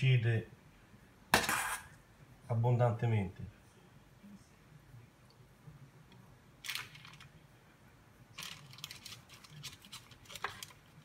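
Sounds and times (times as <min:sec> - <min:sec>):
spoon scraping and crinkling paper: 0:08.4 - 0:11.0.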